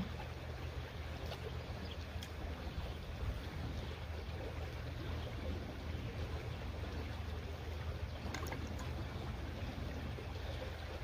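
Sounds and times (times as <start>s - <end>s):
creek trickling over rocks: 0.0s - 11.0s
low wind noise on microphone: 0.0s - 11.0s.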